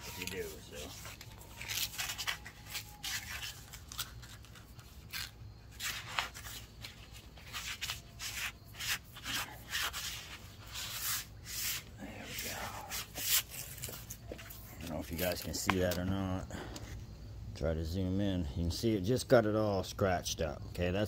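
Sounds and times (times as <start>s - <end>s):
sandpaper rubbing on lead: 0.0s - 14.5s.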